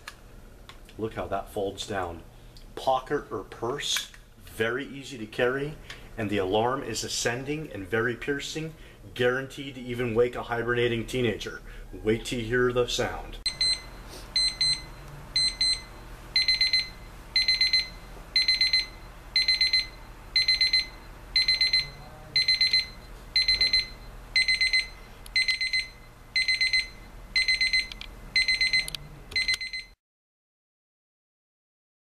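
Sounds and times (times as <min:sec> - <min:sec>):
alarm clock beeping: 0:13.5 - 0:30.0.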